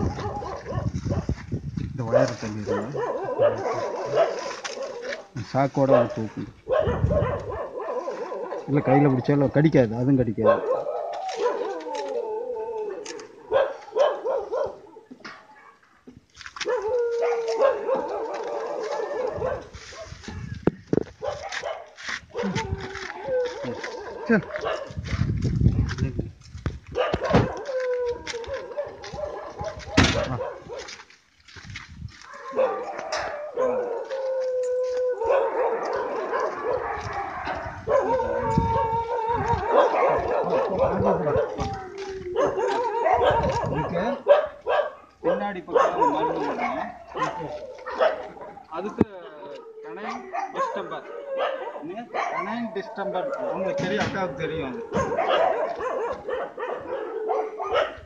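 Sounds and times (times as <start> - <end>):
dogs howling: 0.0 - 1.3, 2.1 - 15.8, 16.6 - 20.4, 21.2 - 25.0, 27.0 - 31.0, 32.2 - 58.0
dogs barking and yelping: 0.0 - 1.4, 2.1 - 9.6, 10.4 - 15.9, 16.6 - 25.3, 26.8 - 31.0, 32.2 - 58.0
handling noise: 16.2 - 45.0.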